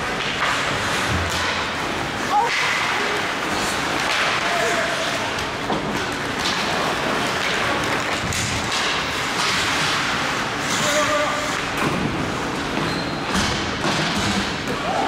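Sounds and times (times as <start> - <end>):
skates scraping ice: 0.0 - 15.0
sticks and puck clacking: 0.0 - 15.0
thuds against rink boards: 13.2 - 14.8.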